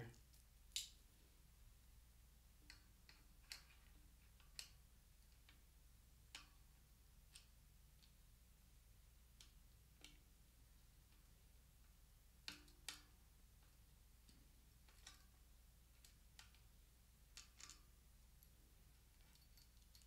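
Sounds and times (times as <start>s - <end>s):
small clicks of brake parts: 17.4s - 18.5s.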